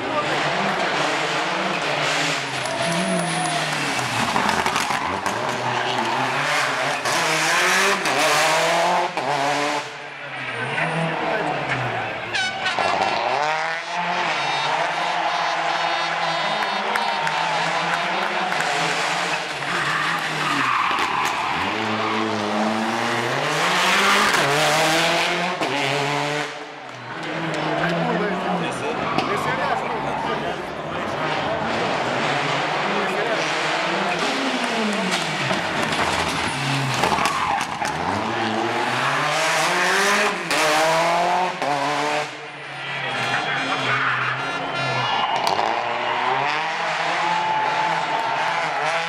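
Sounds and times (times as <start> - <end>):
rally car engine revving: 0.0 - 49.0
tyres skidding: 0.0 - 49.0
tyres squealing on tarmac: 19.3 - 22.6, 36.2 - 39.4.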